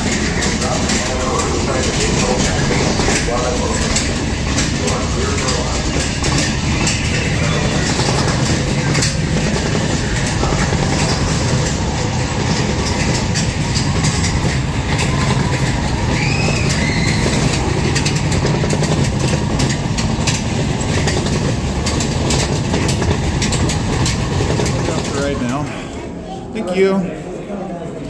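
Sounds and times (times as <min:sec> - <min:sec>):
wheels clattering on rails: 0:00.0 - 0:26.3
roller coaster rumbling on track: 0:00.0 - 0:28.0
wheel squeal: 0:15.0 - 0:18.2.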